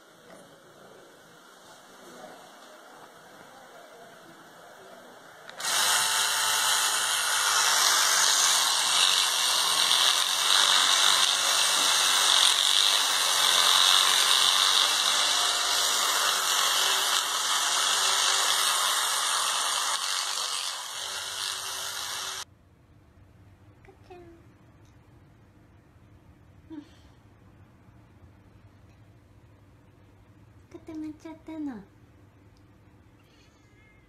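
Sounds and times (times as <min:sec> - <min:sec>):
electric toothbrush whirring: 0:05.5 - 0:22.5.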